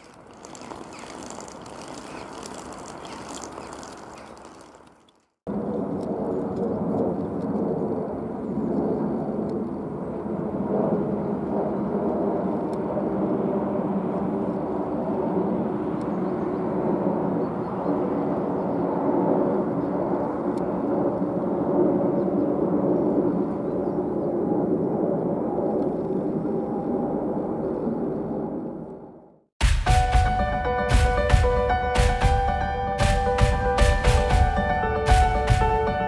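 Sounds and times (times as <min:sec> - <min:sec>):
jet airliner low rumble: 0:05.5 - 0:29.4.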